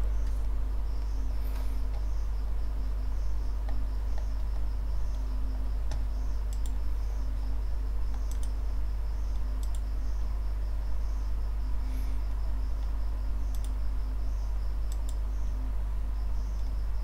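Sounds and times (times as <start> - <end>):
faint pulsing high chirp: 0.0 - 17.0
low electrical hum: 0.0 - 17.0
sharp clicks: 5.9 - 6.8, 8.1 - 8.6, 9.3 - 9.8, 13.5 - 13.8, 14.9 - 15.2.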